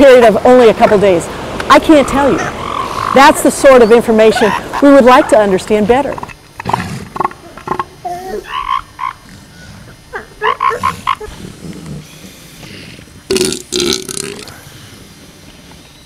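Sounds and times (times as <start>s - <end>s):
elephant seals calling: 1.8s - 13.2s.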